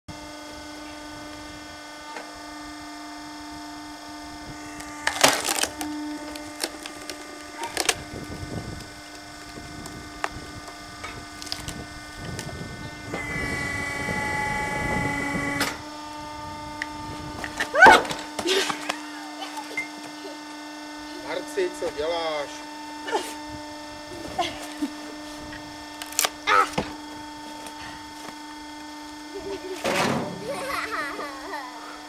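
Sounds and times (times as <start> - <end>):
log splitter motor humming: 0.1 - 32.0
strained motor whine: 0.1 - 32.0
wood cracking and splitting: 4.7 - 10.4, 11.4 - 12.6, 26.0 - 27.0.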